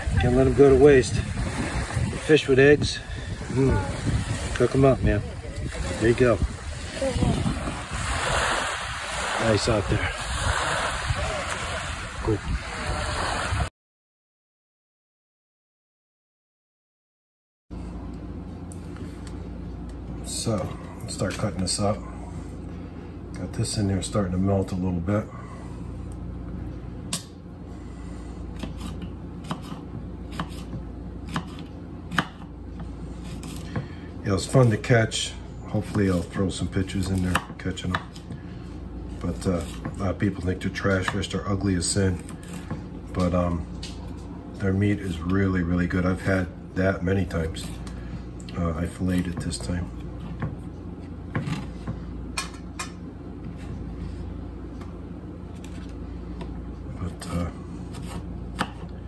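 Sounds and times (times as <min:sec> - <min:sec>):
steady low hum: 0:00.0 - 0:13.7, 0:17.7 - 0:59.0.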